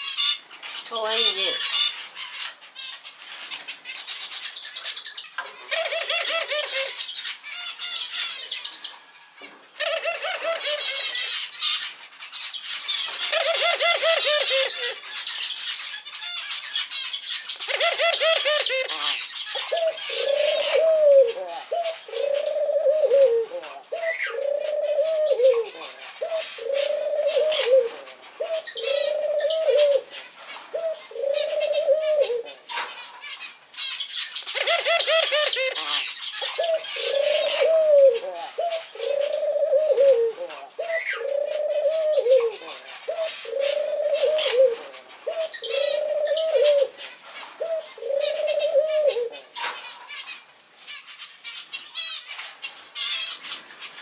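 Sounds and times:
dove cooing: 5.6s - 7.0s, 9.8s - 11.3s, 13.2s - 15.0s, 17.7s - 32.6s, 34.5s - 49.8s.

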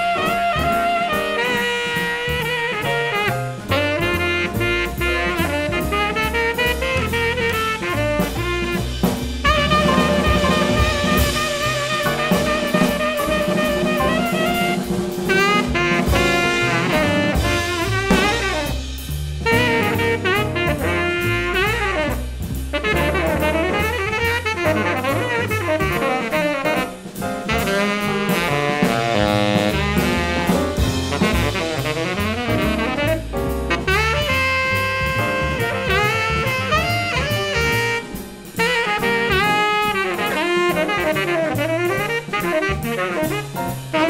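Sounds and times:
drum kit with cymbals: 0.0s - 44.0s
saxophone melody: 0.0s - 44.0s
upright bass: 0.0s - 44.0s.

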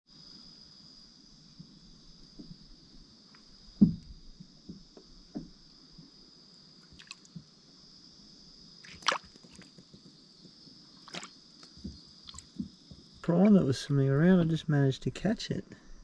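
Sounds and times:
water drips and sloshes: 6.8s - 7.5s, 8.8s - 10.1s, 11.0s - 13.6s
high-pitched hiss: 9.6s - 16.0s.

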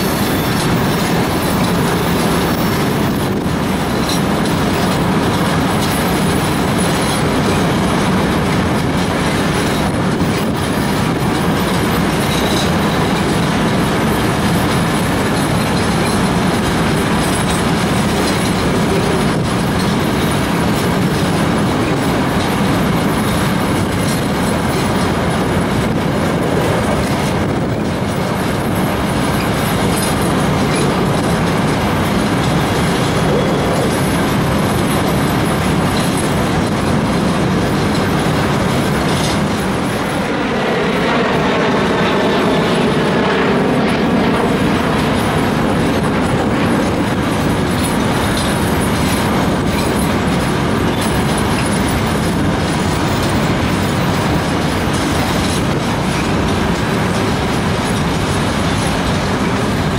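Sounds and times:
freight train wheels clattering: 0.0s - 59.9s.

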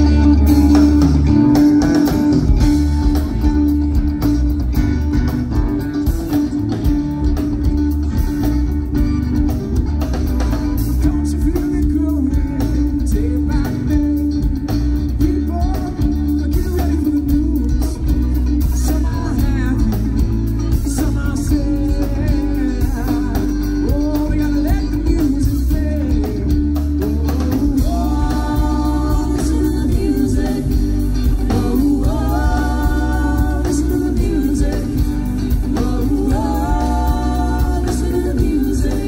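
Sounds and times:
bass guitar: 0.0s - 39.0s
drum kit steady beat: 0.0s - 39.0s
electric guitar: 0.0s - 39.0s.

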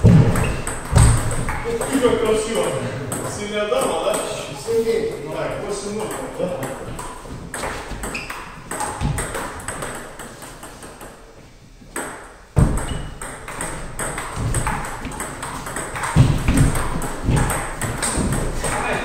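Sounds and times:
heavy deep thump: 0.0s - 1.6s.

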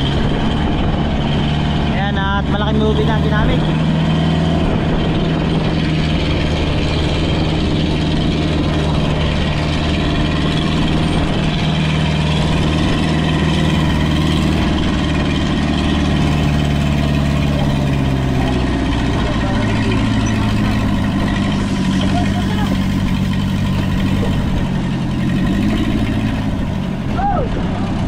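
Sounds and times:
boat engine running: 0.0s - 28.0s.

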